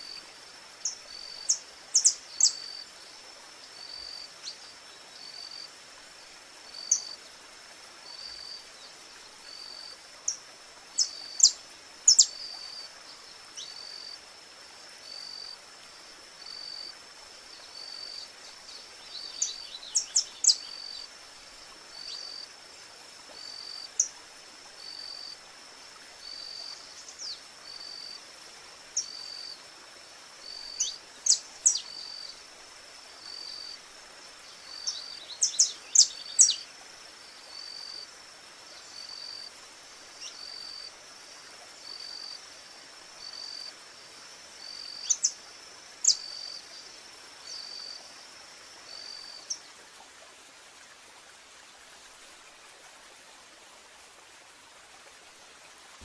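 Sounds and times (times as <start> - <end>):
insect buzz: 0.0 - 49.7.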